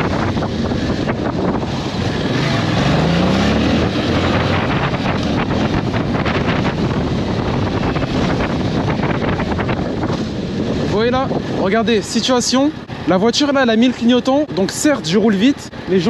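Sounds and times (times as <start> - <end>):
motorcycle engine running: 0.0 - 11.6
wind rushing over microphone: 0.0 - 16.0.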